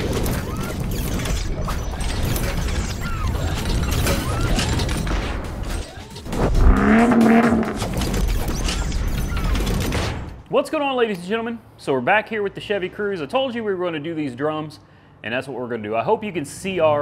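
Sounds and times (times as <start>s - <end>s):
loud pitched drone: 6.4s - 8.1s.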